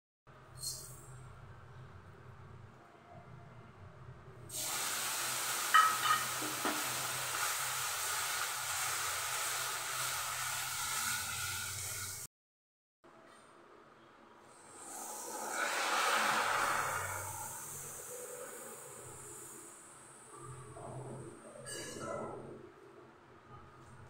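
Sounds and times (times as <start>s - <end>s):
sugar hissing in a pan: 4.5s - 12.3s, 14.8s - 19.9s.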